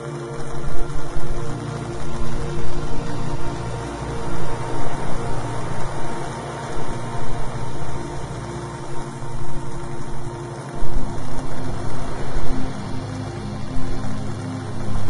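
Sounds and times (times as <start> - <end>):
low drone: 0.0 - 15.0
rushing noise: 0.0 - 15.0.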